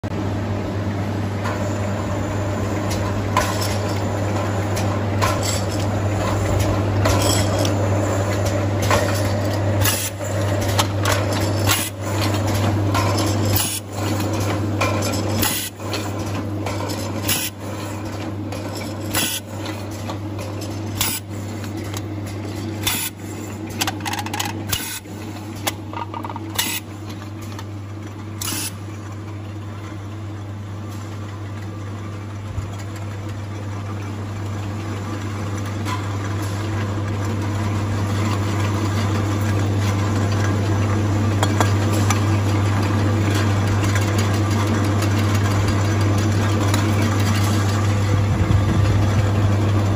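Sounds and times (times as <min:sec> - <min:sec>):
machine motor hum: 0:00.1 - 0:29.3, 0:36.2 - 0:49.9.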